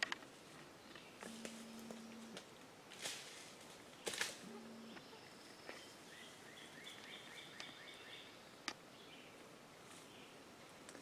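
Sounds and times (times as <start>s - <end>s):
leaves and brush rustling: 0.0s - 11.0s
bird chirping: 3.9s - 9.4s.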